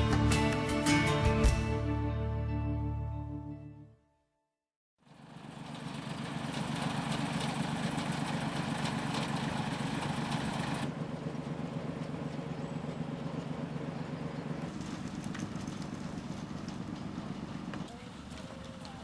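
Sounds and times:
diesel engines idling: 5.1 - 19.0.

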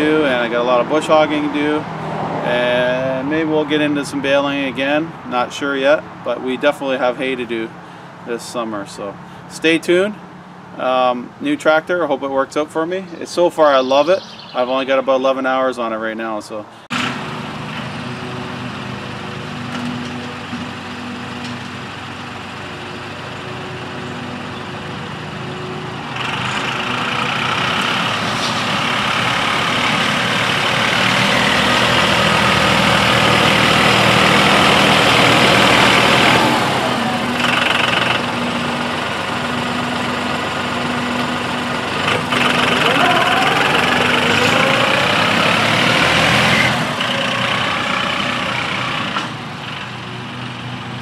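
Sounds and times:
tractor diesel engine running: 16.9 - 51.0.

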